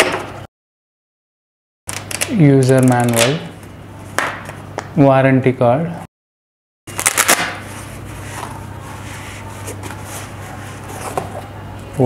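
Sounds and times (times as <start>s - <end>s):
steady low hum: 2.0s - 6.1s, 6.9s - 12.0s.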